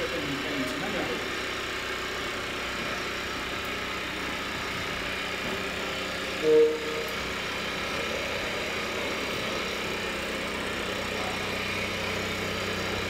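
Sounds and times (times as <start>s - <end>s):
toy truck motor running: 0.0s - 13.0s
short beep: 6.4s - 7.2s.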